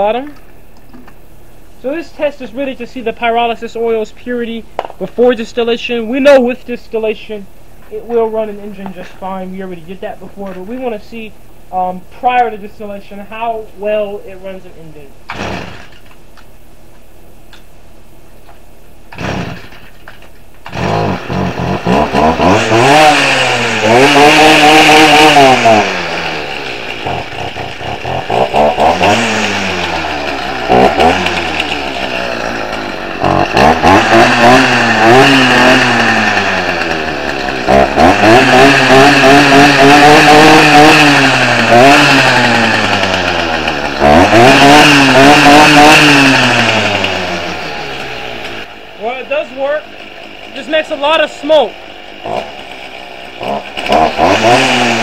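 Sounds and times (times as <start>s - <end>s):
string trimmer engine revving: 15.2s - 16.2s, 19.1s - 55.0s.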